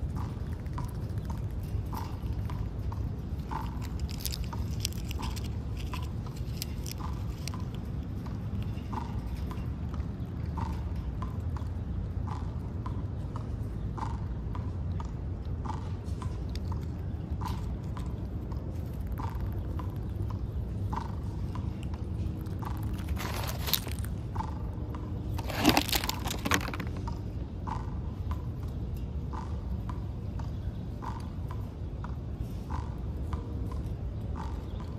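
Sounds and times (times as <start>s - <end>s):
squirrel crunching peanuts: 0.0s - 11.0s, 14.9s - 27.4s
steady low hum: 0.0s - 34.9s.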